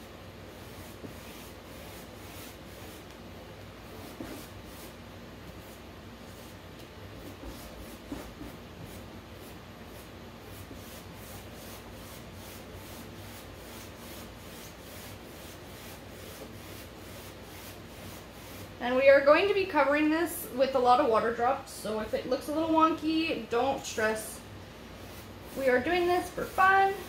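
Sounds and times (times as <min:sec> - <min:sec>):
paintbrush strokes on canvas: 0:00.5 - 0:03.2, 0:03.8 - 0:06.6, 0:07.2 - 0:18.8, 0:23.4 - 0:27.0.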